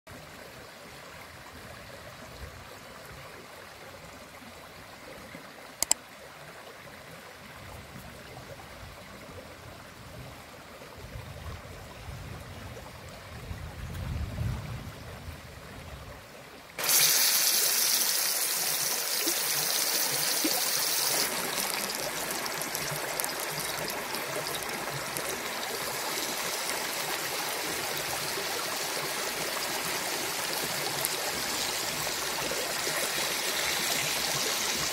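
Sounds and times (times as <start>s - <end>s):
stream running: 0.1s - 14.2s, 14.8s - 34.9s
sharp click: 5.8s - 6.0s
fish sizzling in a pan: 16.8s - 26.7s.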